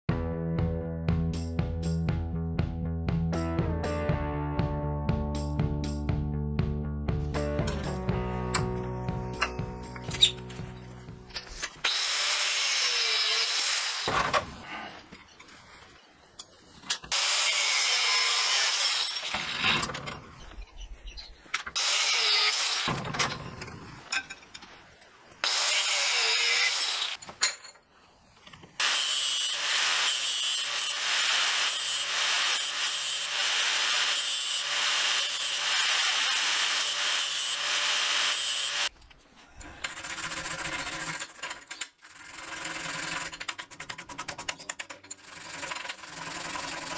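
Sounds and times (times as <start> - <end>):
angle grinder cutting steel: 11.6 - 14.2, 17.1 - 20.0, 21.8 - 23.5, 25.4 - 27.2, 28.8 - 38.9.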